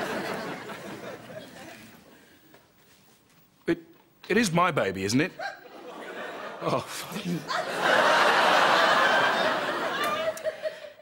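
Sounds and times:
studio audience laughing: 0.0s - 1.9s, 5.6s - 11.0s.

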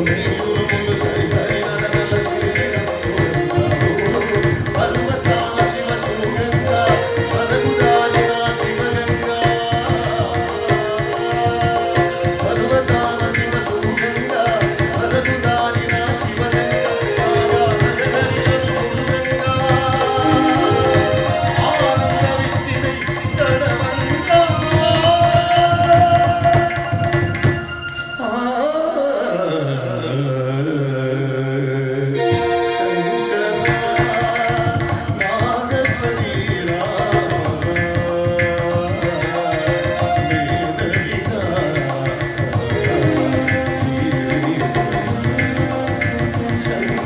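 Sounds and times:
men singing into microphones: 0.0s - 27.6s, 28.2s - 47.0s
percussion steady beat: 0.0s - 28.4s, 32.2s - 32.9s, 33.6s - 47.0s.

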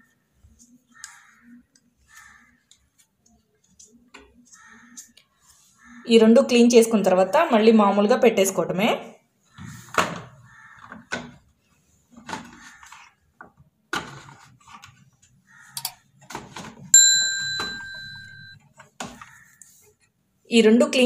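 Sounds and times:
sharp metallic ding: 17.0s - 18.6s.

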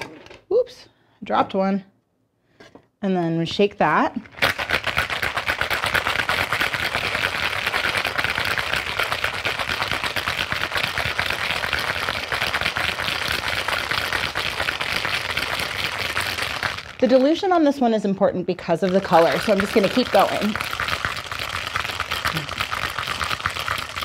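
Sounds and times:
ice rattling in cocktail shaker: 4.2s - 17.5s, 18.8s - 24.0s.

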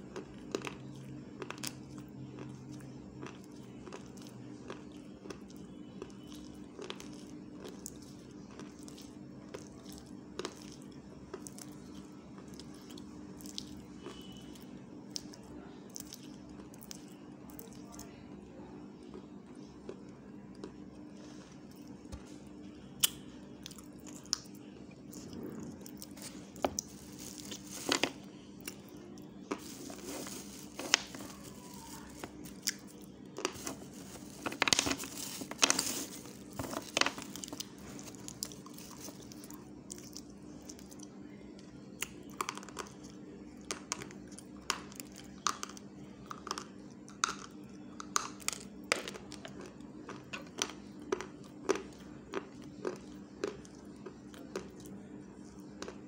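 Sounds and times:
steady low hum: 0.0s - 56.0s
person chewing: 0.1s - 14.5s, 23.0s - 41.0s, 49.2s - 56.0s.

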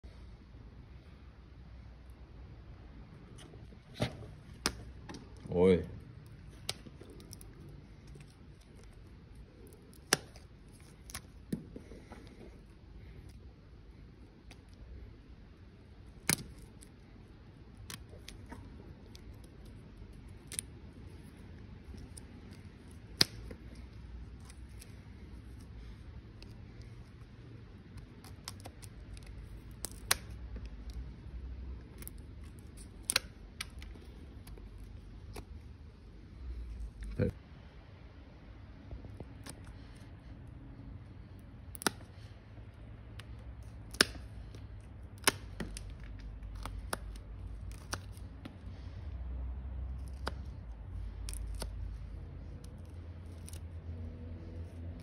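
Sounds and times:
hand snips cutting: 17.8s - 23.8s, 28.0s - 31.0s, 32.0s - 34.6s, 43.2s - 48.3s.

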